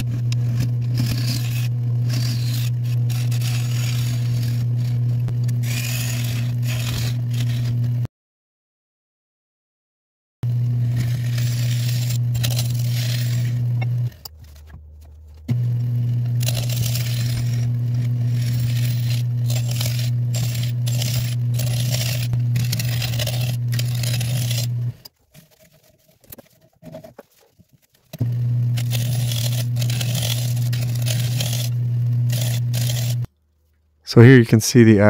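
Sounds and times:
turning tool cutting wood: 0.0 - 8.0, 10.4 - 33.3
wood lathe motor hum: 0.0 - 8.0, 10.4 - 25.0, 28.2 - 33.3
faint handling sounds: 14.1 - 15.5, 23.8 - 31.6.

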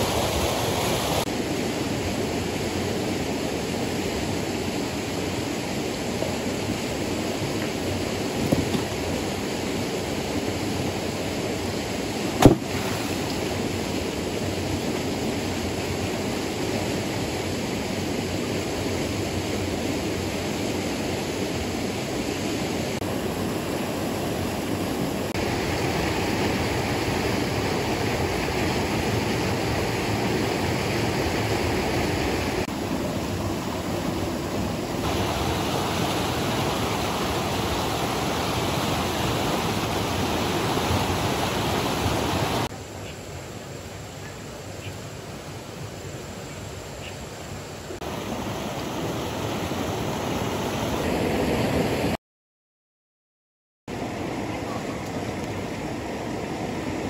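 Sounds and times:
stream rushing over stones: 0.0 - 52.2, 53.9 - 57.0
sharp knock: 12.4 - 12.8.

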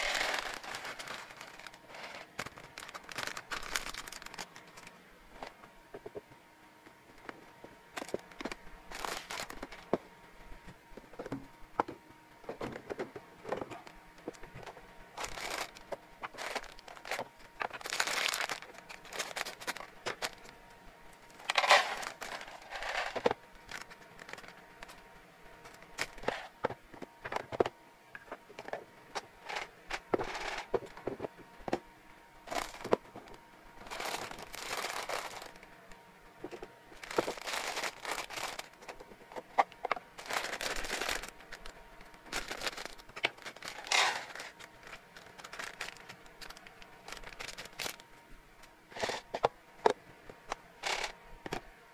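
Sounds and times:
plastic bags crinkling: 0.0 - 4.9, 8.0 - 9.9, 15.2 - 20.5, 21.3 - 25.0, 32.5 - 33.0, 33.8 - 35.6, 37.0 - 39.0, 39.9 - 48.0.

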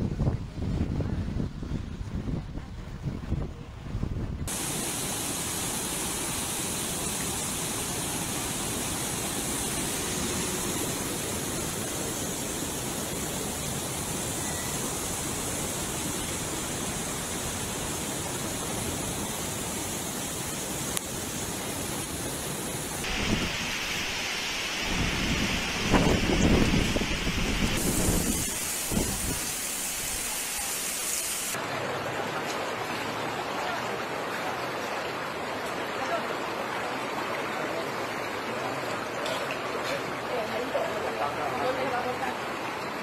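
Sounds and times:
wind gusts buffeting microphone: 0.0 - 4.5, 24.8 - 29.5
typhoon wind: 0.0 - 31.6
heavy rain: 4.5 - 43.0
river torrent rushing: 4.5 - 43.0.

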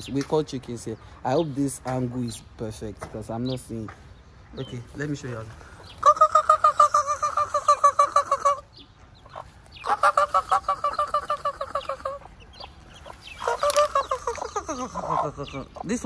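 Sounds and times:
person making clucking call: 6.0 - 8.7, 9.8 - 12.4, 13.4 - 16.0.

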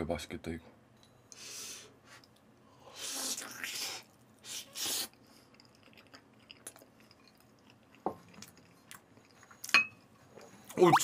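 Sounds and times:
person chewing food: 5.3 - 9.7.

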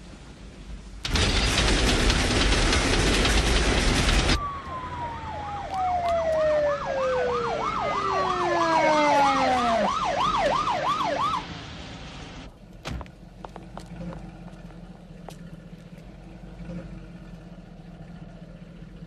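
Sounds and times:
train wheels clattering on rails: 1.1 - 4.4
siren winding down: 4.3 - 11.6
electronic siren yelp: 4.4 - 11.5.

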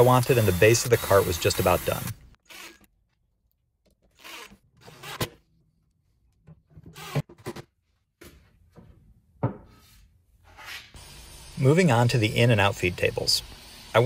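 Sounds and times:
cordless drill driving screws: 0.0 - 2.9, 4.1 - 5.2.

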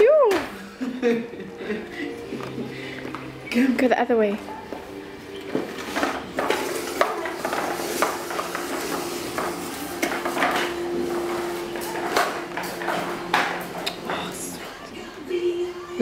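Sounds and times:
plastic walker toy rattling on tiles: 5.9 - 14.2.

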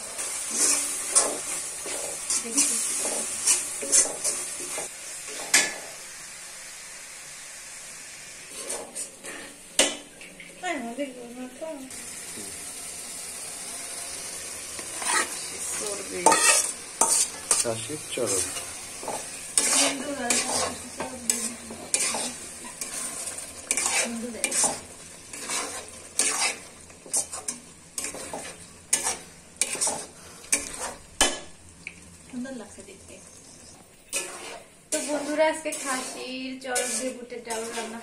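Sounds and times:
metal spatula scraping a wok: 0.0 - 6.0, 8.5 - 9.6, 14.8 - 31.4, 33.4 - 38.0
frying fat sizzling: 0.0 - 38.0.

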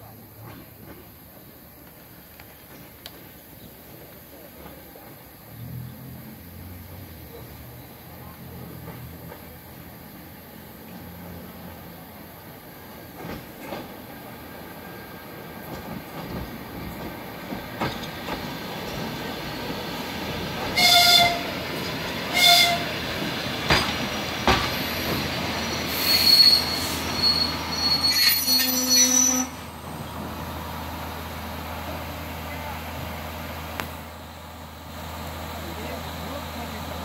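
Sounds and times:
electric train arriving: 0.3 - 37.0
wheels clacking over rail joints: 8.4 - 10.2, 12.8 - 14.6, 15.4 - 25.8
train horn blasts: 20.8 - 21.6, 22.3 - 22.9
wheels squealing: 24.7 - 30.2.

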